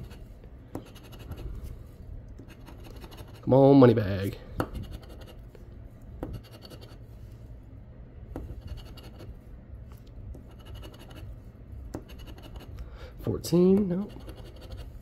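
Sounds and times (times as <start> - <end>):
coin scratching lottery ticket: 0.8 - 1.5, 2.4 - 3.5, 6.3 - 7.0, 8.5 - 9.3, 10.5 - 11.3, 12.0 - 12.7, 14.0 - 15.0.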